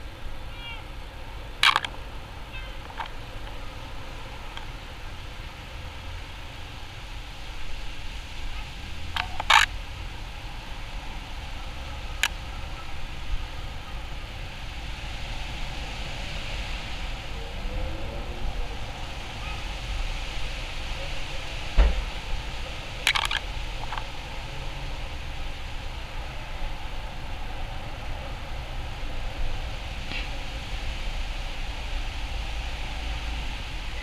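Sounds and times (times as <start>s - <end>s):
distant traffic rumble: 0.0s - 34.0s
sharp clicks: 1.6s - 2.0s, 23.1s - 24.0s
thump: 21.8s - 22.1s.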